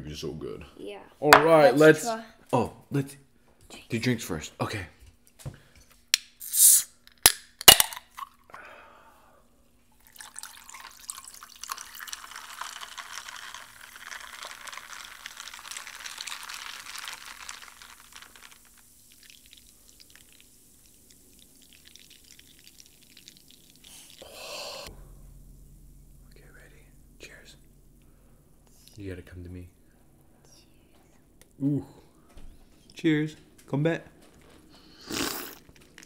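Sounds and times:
drink pouring over ice: 10.0 - 24.8, 35.1 - 36.0.

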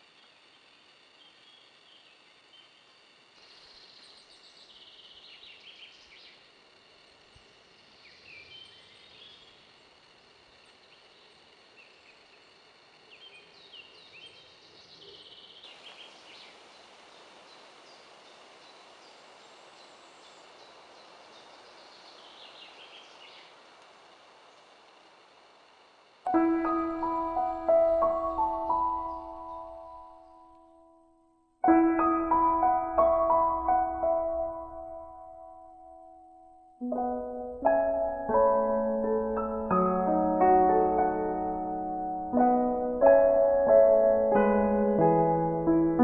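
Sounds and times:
songbirds chirping: 0.0 - 31.0
faint outdoor hiss: 0.0 - 46.0.

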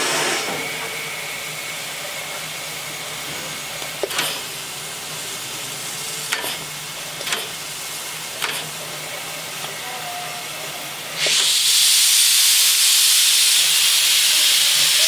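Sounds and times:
steam locomotive hissing: 0.0 - 15.0.

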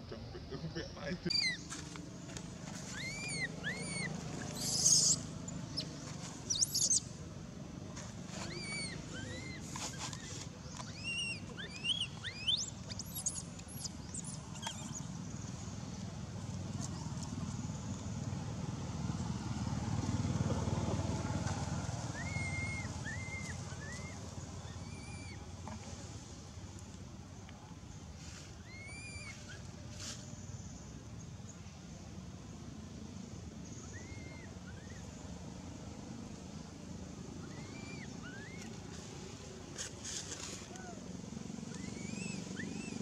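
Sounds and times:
baby monkey crying: 1.3 - 1.6, 2.9 - 5.3, 8.5 - 9.6, 10.9 - 15.0, 22.1 - 25.4, 28.6 - 29.3, 37.4 - 38.7, 41.8 - 43.0.

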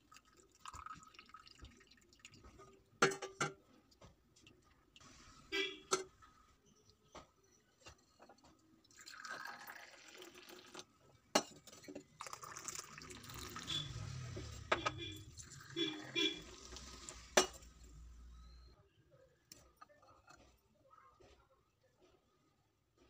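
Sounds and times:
tea pouring and splashing: 0.0 - 3.0, 8.7 - 18.3.

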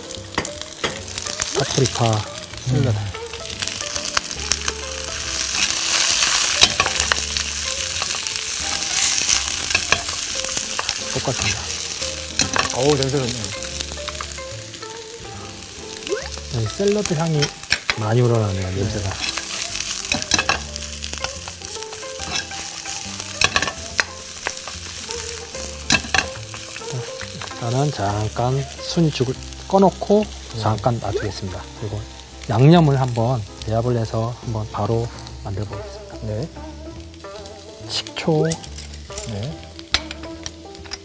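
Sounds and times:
vegetables sizzling in oil: 0.0 - 41.0
spatula scraping a wok: 4.0 - 12.8, 18.8 - 27.6
wooden spatula scraping a wok: 16.4 - 28.1.

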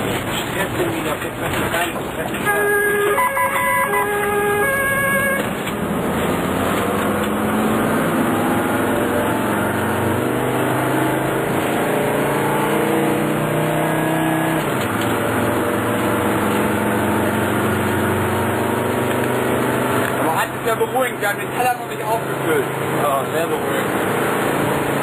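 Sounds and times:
two-tone siren: 2.4 - 5.6
vehicle engine accelerating: 3.9 - 25.0.

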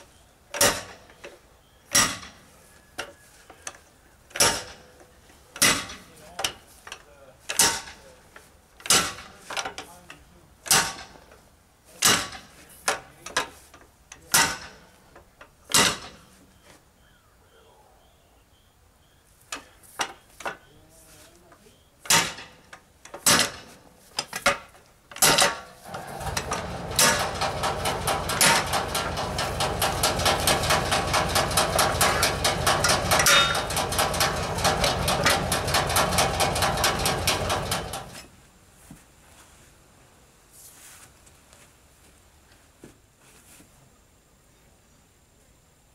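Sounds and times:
rapid metallic clatter: 25.2 - 38.2
steel bar striking metal rim: 26.9 - 35.4.

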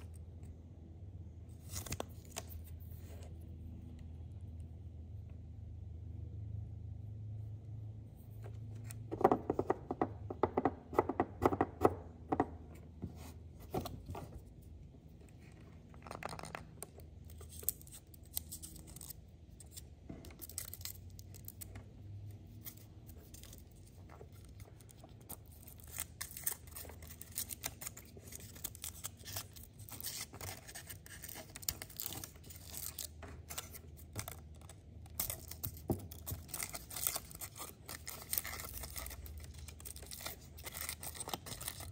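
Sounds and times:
sharp taps and knocks: 9.1 - 13.1
foil wrapper crinkling: 24.4 - 41.9.

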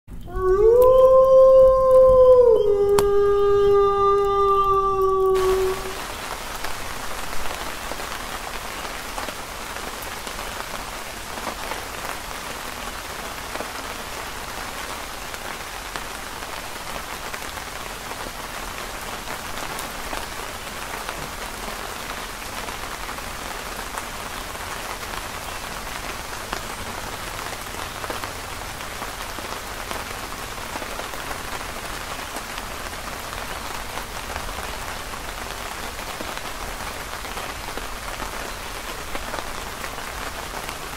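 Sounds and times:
steady rain falling: 0.1 - 40.9
campfire crackling: 0.5 - 29.4.

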